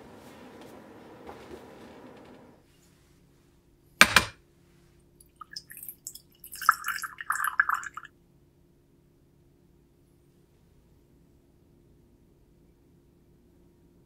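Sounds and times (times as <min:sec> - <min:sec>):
sharp knock: 0:04.0 - 0:04.4
water pouring into glass bowl: 0:05.3 - 0:08.1.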